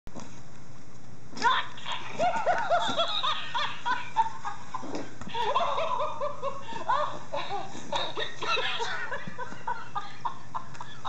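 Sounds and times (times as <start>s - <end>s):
toy monkey recorded laugh: 1.4s - 4.6s, 5.4s - 11.0s.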